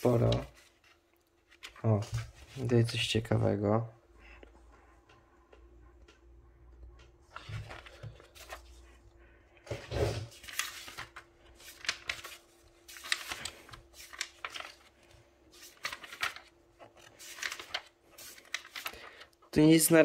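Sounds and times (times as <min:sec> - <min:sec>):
magazine pages rustling: 0:00.0 - 0:03.0, 0:07.3 - 0:09.0, 0:09.6 - 0:20.0.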